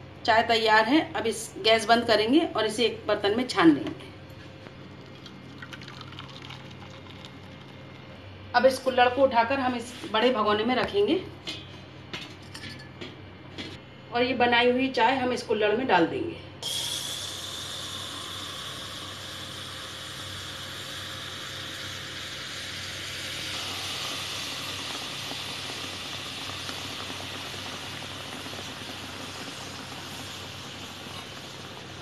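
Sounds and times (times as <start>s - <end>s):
tea sizzling and boiling over: 1.3s - 9.1s, 16.6s - 32.0s.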